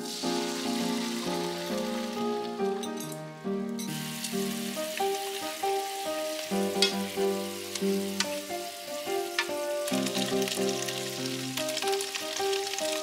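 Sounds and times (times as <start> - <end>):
background music with melody: 0.0 - 13.0
peppers sizzling in a frying pan: 0.0 - 13.0
chopsticks clicking against pan: 6.8 - 7.1, 7.7 - 8.4.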